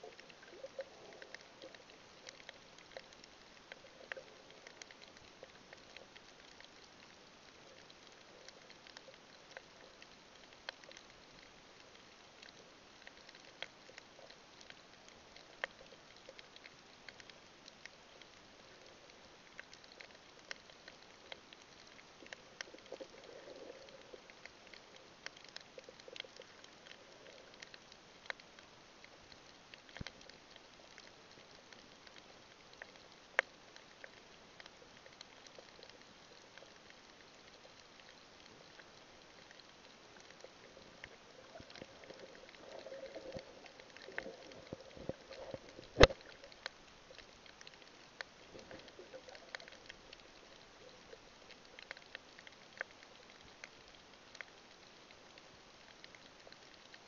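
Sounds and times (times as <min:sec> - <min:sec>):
sharp clicks and crackles: 0:00.0 - 0:57.0
soft underwater hiss: 0:00.0 - 0:57.0
muffled gurgles: 0:40.2 - 0:46.6.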